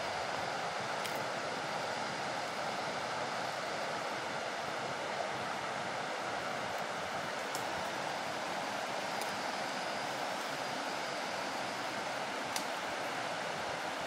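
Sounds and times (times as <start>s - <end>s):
river rushing over boulders: 0.0s - 14.0s.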